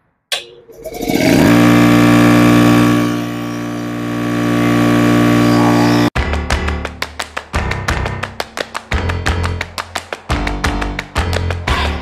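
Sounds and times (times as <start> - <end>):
air compressor motor running: 0.8 - 6.2.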